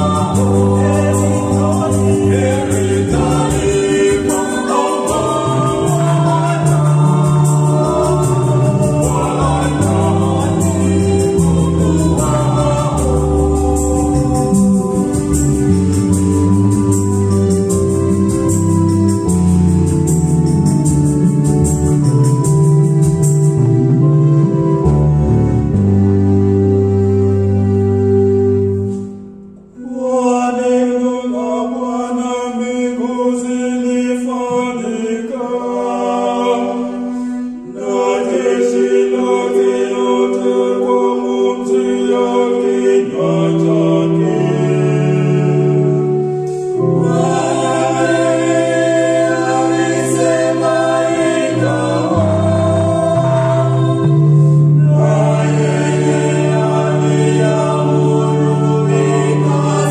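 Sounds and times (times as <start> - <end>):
vocal group singing in harmony: 0.0 - 23.4, 28.7 - 59.9
electronic keyboard: 0.0 - 29.9, 42.6 - 59.9.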